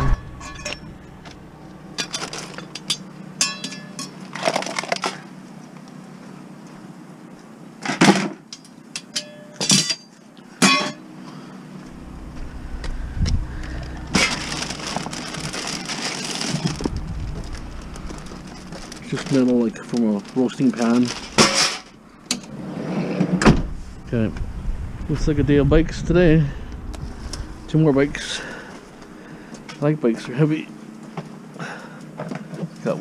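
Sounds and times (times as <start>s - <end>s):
sheet metal clanking and rattling: 20.5s - 22.5s.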